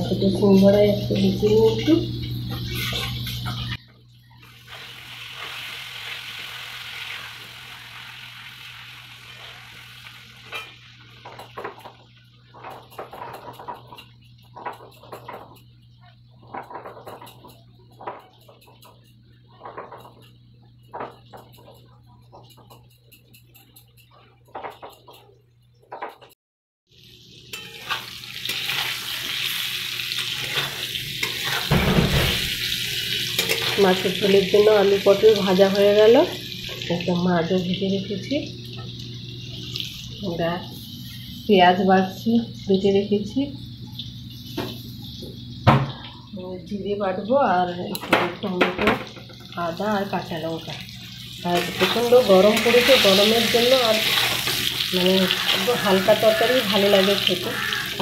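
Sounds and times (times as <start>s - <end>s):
kitchen utensils clinking: 0.0s - 3.8s, 10.4s - 26.4s, 27.5s - 40.4s, 47.7s - 58.0s
food sizzling in oil: 0.0s - 20.4s, 26.9s - 58.0s
metal spatula stirring: 27.5s - 29.4s, 30.1s - 31.7s, 33.4s - 34.0s, 51.5s - 57.8s.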